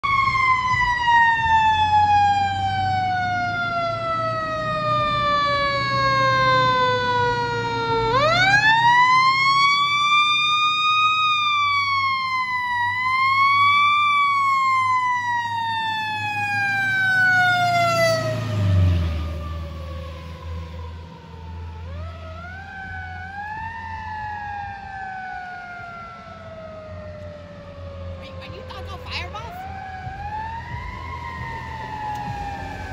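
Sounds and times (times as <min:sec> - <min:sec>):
mechanical siren wailing: 0:00.0 - 0:32.9
truck engine rumbling: 0:00.0 - 0:32.9.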